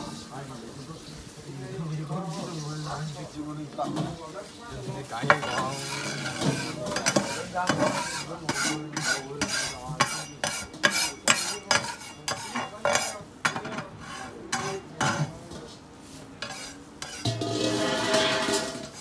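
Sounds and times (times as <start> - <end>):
light sizzling: 0.0 - 19.0
metal spatula scraping griddle: 5.2 - 19.0.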